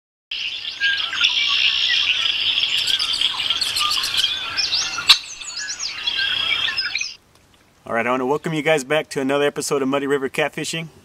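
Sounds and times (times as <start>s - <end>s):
chorus of birds chirping: 0.3s - 7.2s.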